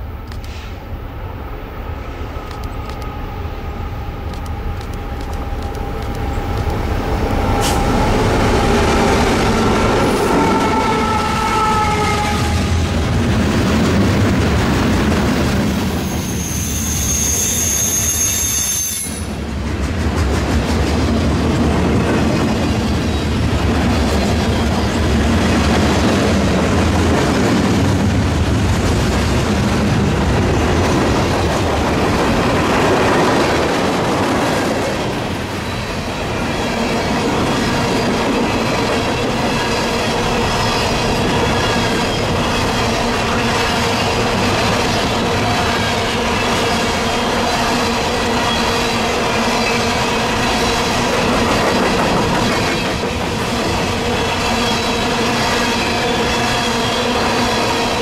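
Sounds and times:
freight train rumble and clatter: 0.0s - 58.0s
high-pitched wheel squeal: 16.0s - 19.3s.

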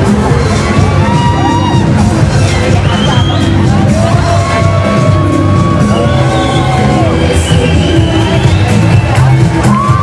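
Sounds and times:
loud electronic dance music: 0.0s - 10.0s.

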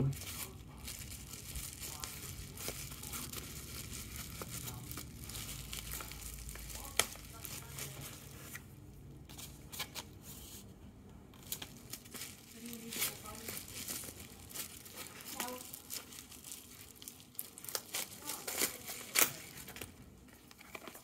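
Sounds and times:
packaging tearing and crinkling: 0.0s - 8.6s, 11.4s - 21.0s.

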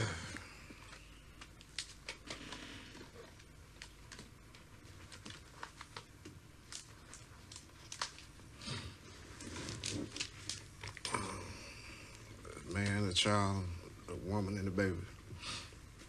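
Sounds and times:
plastic page sleeves rustling: 0.9s - 8.5s, 9.2s - 11.1s.

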